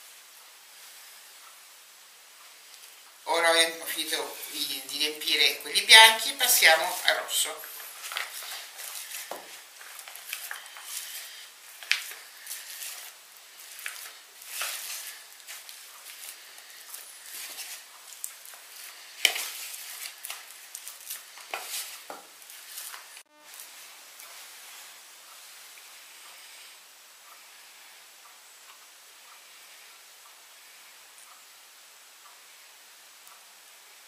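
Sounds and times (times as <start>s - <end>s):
spoon scraping plastic tub: 6.4s - 23.1s.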